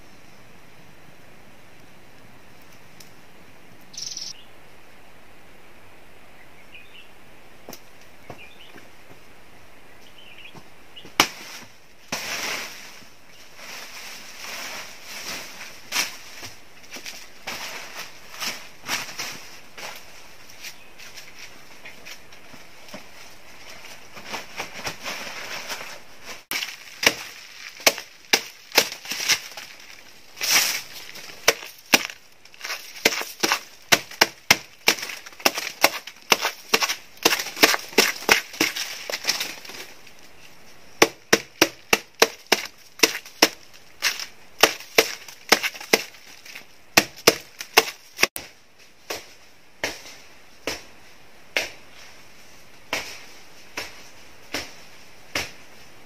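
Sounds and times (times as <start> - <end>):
machete chopping plant trunk: 11.0 - 12.8, 26.5 - 39.8, 41.0 - 48.5, 53.8 - 55.6.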